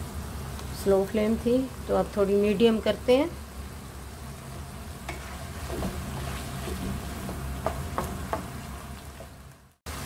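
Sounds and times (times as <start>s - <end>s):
meat cooking in frying pan: 0.0s - 10.0s
spatula scraping a pan: 5.1s - 8.6s.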